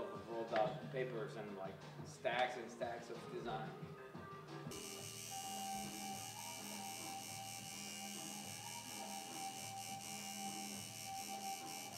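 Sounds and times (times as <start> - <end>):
tattoo machine buzzing: 4.7 - 11.9.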